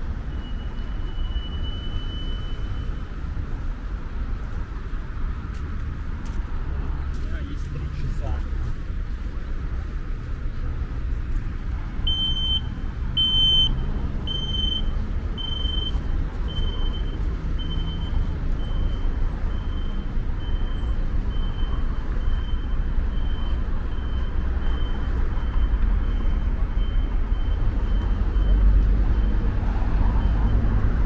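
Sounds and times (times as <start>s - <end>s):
road traffic rumble: 0.0s - 31.0s
high electronic beeps: 12.1s - 29.5s.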